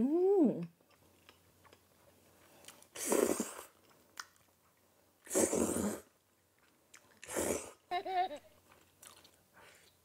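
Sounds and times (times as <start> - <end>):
quiet chewing: 0.6 - 3.0, 3.6 - 5.3, 6.2 - 7.4, 8.6 - 10.0.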